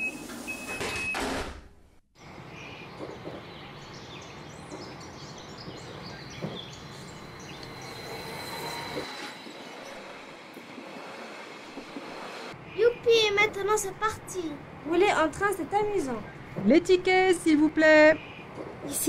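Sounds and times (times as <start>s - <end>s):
birds chirping: 2.2s - 10.4s, 15.1s - 19.0s.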